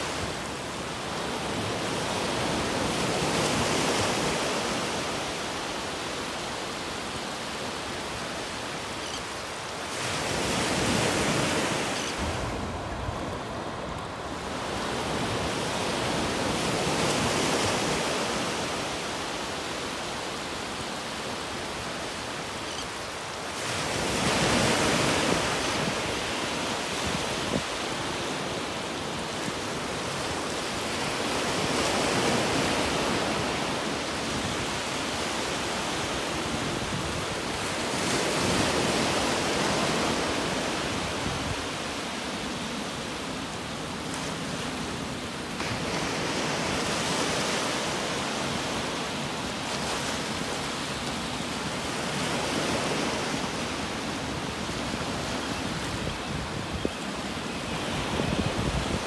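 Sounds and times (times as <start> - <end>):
waves breaking on beach: 0.0 - 59.0.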